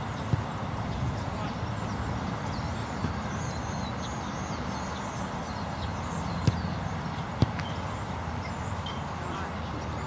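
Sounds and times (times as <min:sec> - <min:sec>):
soccer ball kicked: 0:00.2 - 0:01.5, 0:02.1 - 0:03.4, 0:06.2 - 0:07.8.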